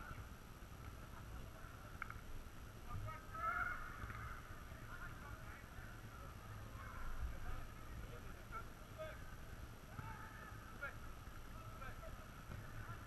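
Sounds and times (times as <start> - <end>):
distant shouts of players: 2.9 - 13.0.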